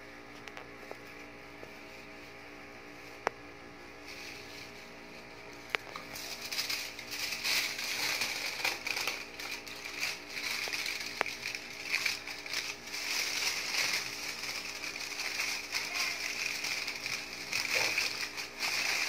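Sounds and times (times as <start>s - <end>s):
aluminium foil crinkling: 4.0s - 19.0s.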